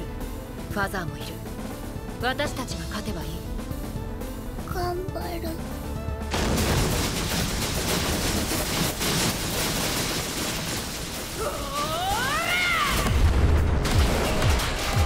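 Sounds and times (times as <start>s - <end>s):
deep boom: 13.0s - 15.0s.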